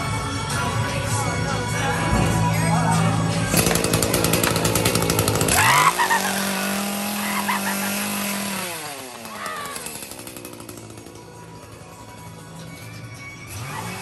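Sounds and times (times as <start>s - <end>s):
chainsaw revving: 3.4s - 12.6s, 13.4s - 14.0s.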